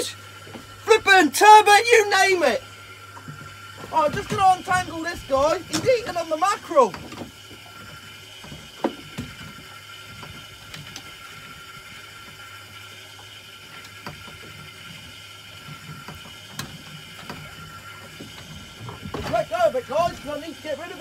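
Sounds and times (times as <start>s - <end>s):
faint clicks and knocks: 13.2s - 20.4s.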